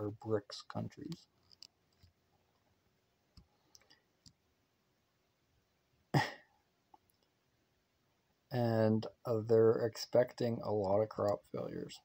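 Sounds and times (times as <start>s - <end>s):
faint clicks: 3.3s - 4.4s
man coughing: 6.2s - 6.5s.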